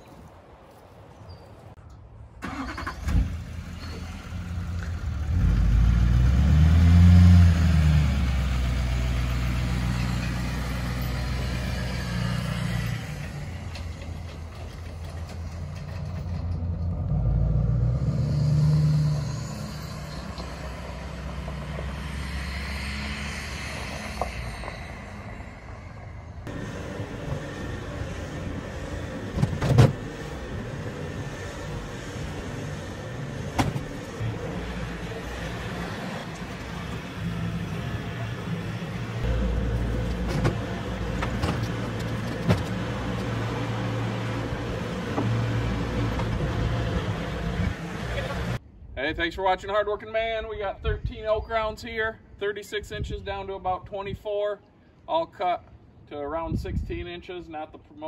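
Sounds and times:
pickup truck engine: 0:02.4 - 0:48.6.

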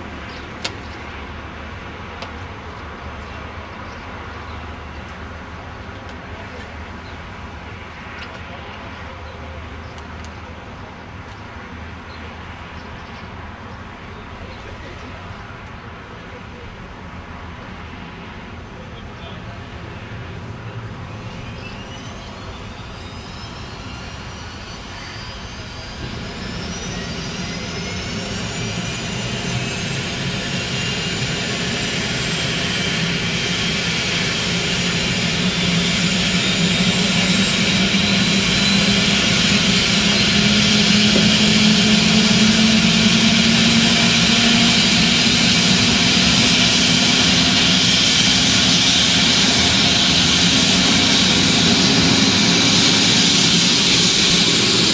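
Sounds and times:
helicopter turbine whine: 0:16.3 - 0:54.9
helicopter rotors speeding up: 0:18.8 - 0:54.9.

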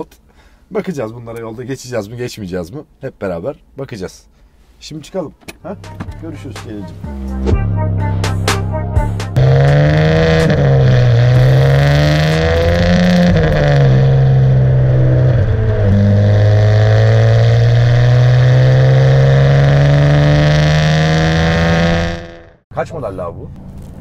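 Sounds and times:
car engine accelerating hard: 0:09.4 - 0:22.6.

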